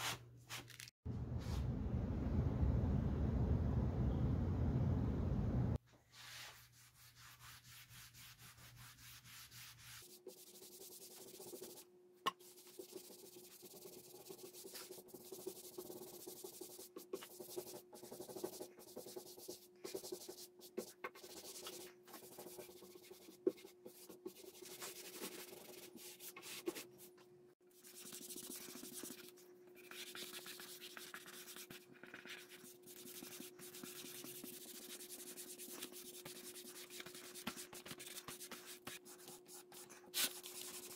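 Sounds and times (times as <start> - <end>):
steady low hum: 1.1 - 5.8.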